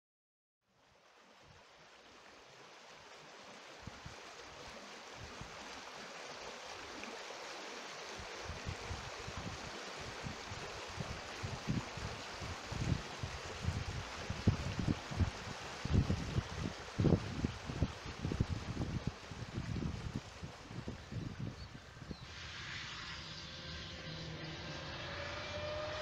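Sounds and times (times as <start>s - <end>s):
wind buffeting microphone: 8.2s - 25.8s.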